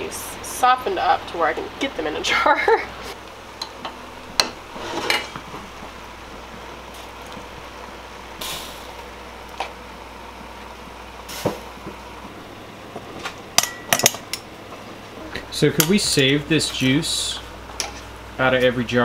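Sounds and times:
steady low hum: 0:00.0 - 0:19.0
metal tongs clinking on pot and jars: 0:13.6 - 0:14.4.

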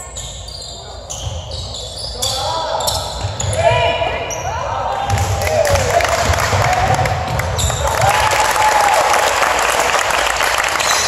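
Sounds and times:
sneakers squeaking: 0:00.0 - 0:05.4, 0:07.0 - 0:08.0
clapping: 0:07.8 - 0:11.0.

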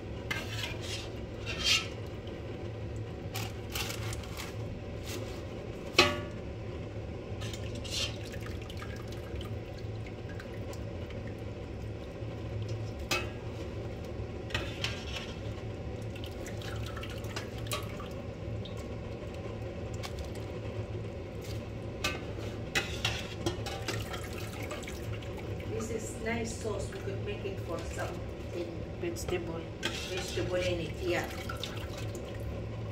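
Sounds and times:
metal spoon scraping pot: 0:00.3 - 0:02.0, 0:14.5 - 0:15.5, 0:22.1 - 0:24.1, 0:29.2 - 0:30.8.

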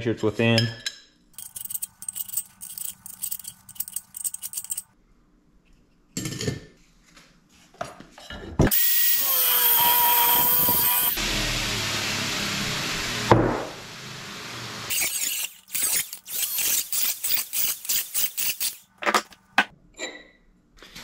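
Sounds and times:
hand tool scraping steel tube: 0:01.4 - 0:04.8, 0:14.9 - 0:18.9
power cutter cutting steel: 0:08.7 - 0:18.9.

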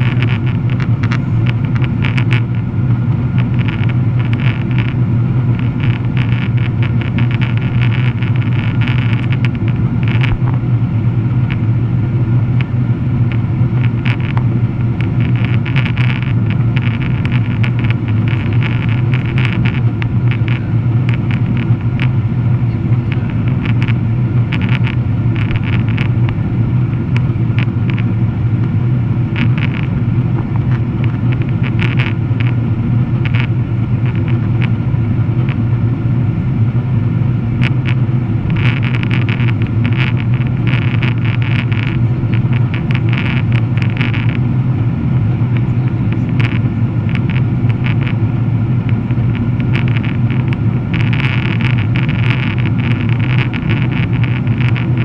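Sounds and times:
light rattling ticks: 0:00.0 - 0:02.6, 0:03.4 - 0:05.0, 0:05.6 - 0:10.6, 0:13.3 - 0:22.1, 0:23.1 - 0:26.2, 0:29.4 - 0:30.0, 0:30.6 - 0:32.6, 0:37.6 - 0:44.4, 0:48.8 - 0:55.0
deep hum: 0:00.0 - 0:55.0
jet engine drone in cabin: 0:00.0 - 0:55.0.

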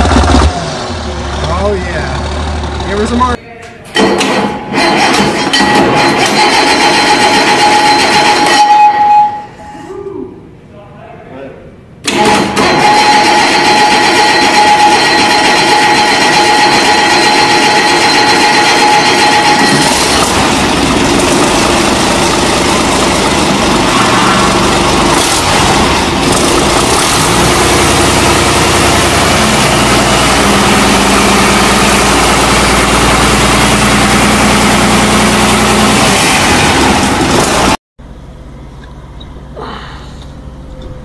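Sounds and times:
diesel engine running: 0:00.0 - 0:03.4, 0:12.1 - 0:41.0
high whine: 0:36.6 - 0:41.0.

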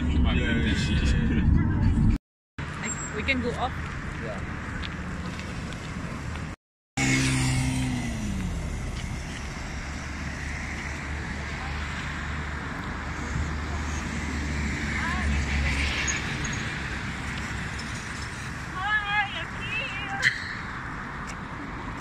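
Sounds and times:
low traffic rumble: 0:00.0 - 0:22.0
vehicle passing: 0:07.0 - 0:19.9.

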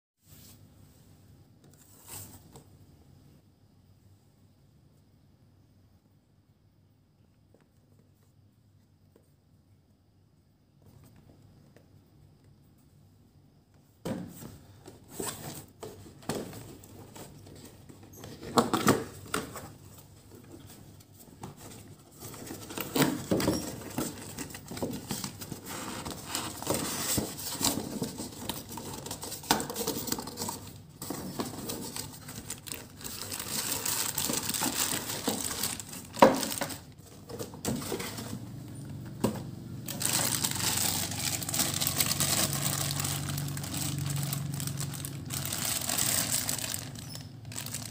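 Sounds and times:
plastic packaging crinkling: 0:21.6 - 0:38.5, 0:39.8 - 0:47.9.

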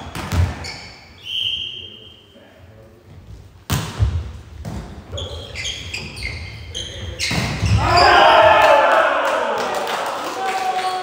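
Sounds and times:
players shouting: 0:07.7 - 0:11.0.

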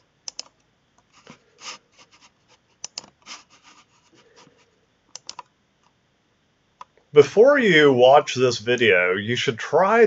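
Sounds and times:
sharp clicks of computer controls: 0:00.0 - 0:01.1, 0:02.8 - 0:03.2, 0:05.0 - 0:06.0, 0:06.8 - 0:07.0.

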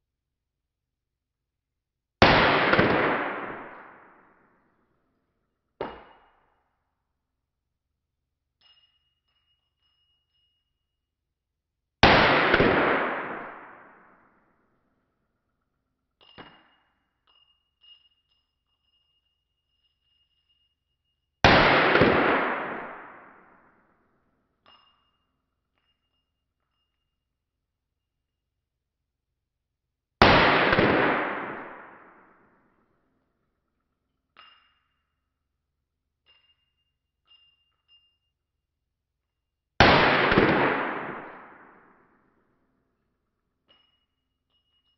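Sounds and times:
pistol shot echoing indoors: 0:02.2 - 0:04.8, 0:12.0 - 0:14.8, 0:21.4 - 0:24.1, 0:30.2 - 0:32.9, 0:39.8 - 0:42.5
short metallic clink: 0:08.6 - 0:11.0, 0:15.1 - 0:21.4, 0:24.5 - 0:27.3, 0:33.5 - 0:35.3, 0:36.2 - 0:38.4, 0:43.7 - 0:44.9.

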